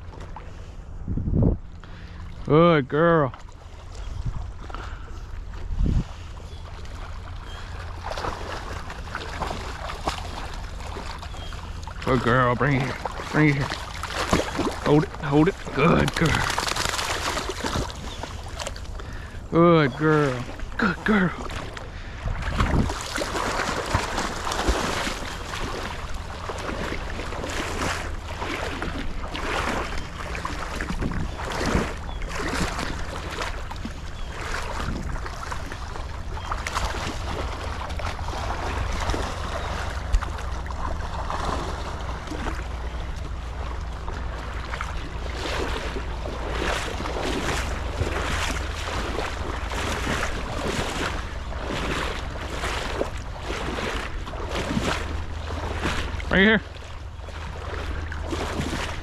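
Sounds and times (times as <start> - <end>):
water splashing and sloshing: 0.0 - 59.0
wind on microphone: 0.9 - 2.1, 4.0 - 6.7, 22.0 - 26.9, 28.7 - 40.4.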